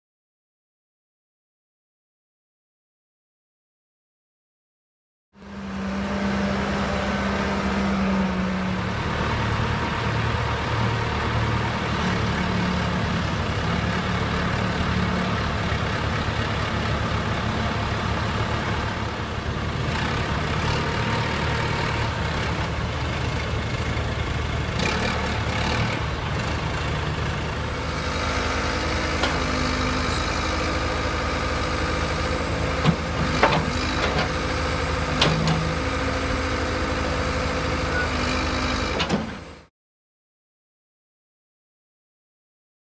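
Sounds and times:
diesel engine idling: 7.8s - 38.4s.

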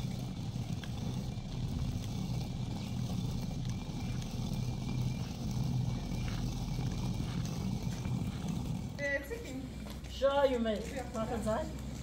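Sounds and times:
stone quern grinding: 0.0s - 12.0s.

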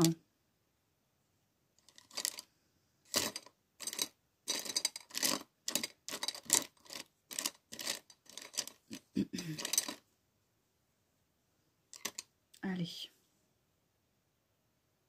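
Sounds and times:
handling rustles and clicks: 1.8s - 2.5s, 3.1s - 10.0s, 11.9s - 12.3s.

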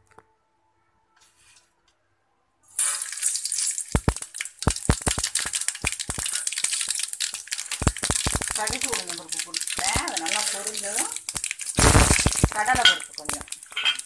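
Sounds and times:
hot oil sizzling: 2.7s - 14.0s
seeds crackling and popping: 2.8s - 14.0s.

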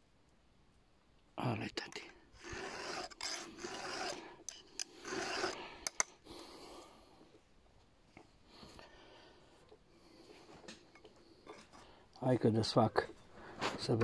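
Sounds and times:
sharp metal clicks: 1.9s - 6.2s
file rasping on chainsaw chain: 2.0s - 6.1s.

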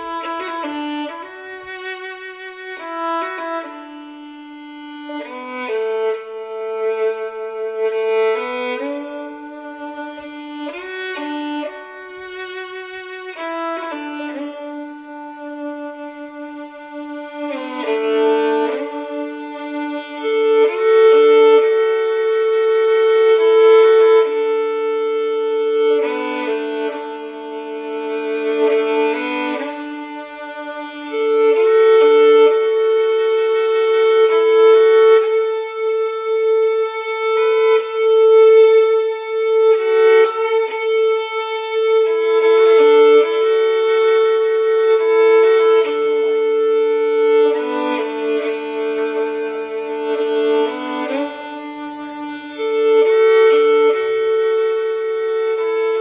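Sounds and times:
mournful violin melody: 0.0s - 56.0s.

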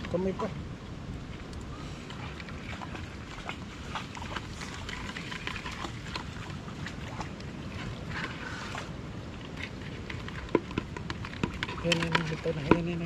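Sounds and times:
river water washing: 0.0s - 13.0s
light clicks and scrapes: 4.0s - 6.6s, 7.8s - 13.0s.

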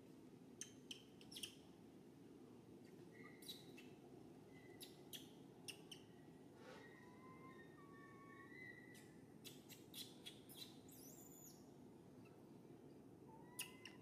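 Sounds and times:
low background hiss: 0.0s - 14.0s
high-pitched animal chirps: 13.5s - 14.0s.

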